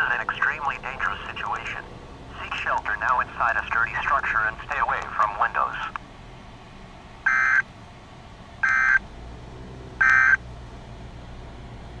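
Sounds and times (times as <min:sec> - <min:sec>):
harsh buzzing data tones: 0:07.2 - 0:07.6, 0:08.6 - 0:09.0, 0:10.0 - 0:10.4.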